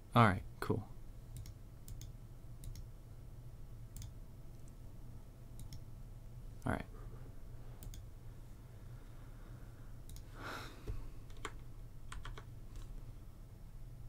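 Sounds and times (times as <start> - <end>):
faint low steady hum: 0.0 - 14.0
keyboard and mouse clicks: 1.3 - 2.9, 3.9 - 4.8, 5.6 - 5.9, 7.8 - 8.1, 10.0 - 10.3, 11.2 - 12.9.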